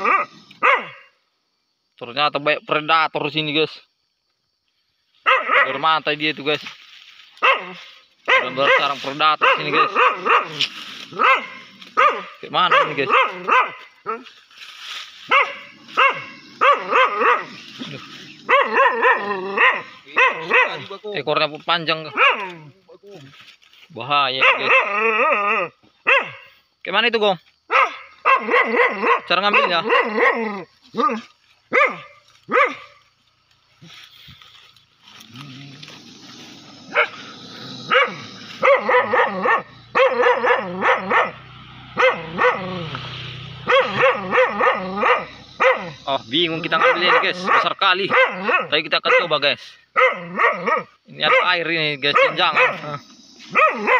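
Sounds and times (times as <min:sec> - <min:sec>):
dog barking rapidly: 0:00.0 - 0:01.1, 0:05.2 - 0:05.9, 0:07.4 - 0:14.2, 0:15.3 - 0:17.6, 0:18.3 - 0:20.9, 0:22.0 - 0:22.6, 0:24.4 - 0:25.4, 0:26.0 - 0:26.5, 0:27.7 - 0:33.0, 0:36.8 - 0:42.9, 0:43.6 - 0:53.9.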